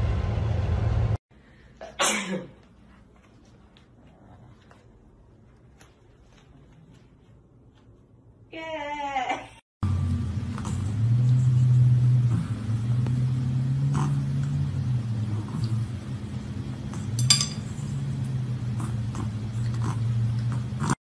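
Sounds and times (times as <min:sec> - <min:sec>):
steady low hum: 0:09.8 - 0:21.0
chopsticks tapping ceramic plate: 0:17.1 - 0:17.8.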